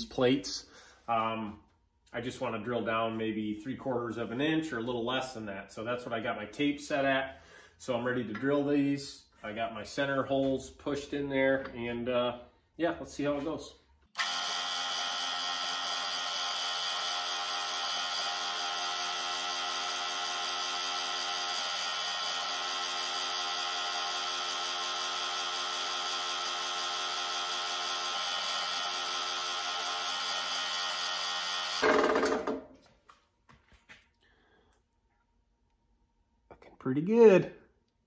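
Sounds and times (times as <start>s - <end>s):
drill press drilling metal: 14.2s - 32.6s.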